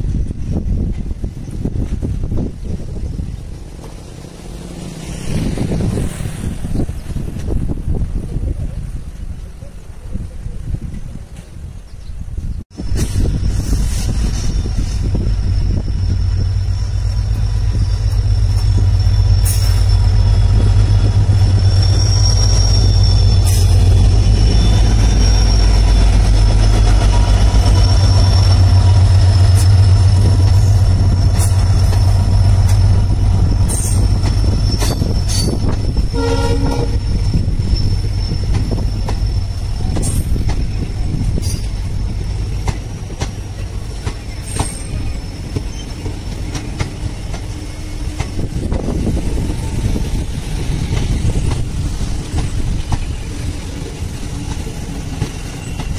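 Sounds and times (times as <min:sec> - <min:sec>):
diesel locomotive engine rumble: 0:00.0 - 0:55.9
wheels squealing: 0:13.2 - 0:55.9
train horn blast: 0:36.1 - 0:37.3.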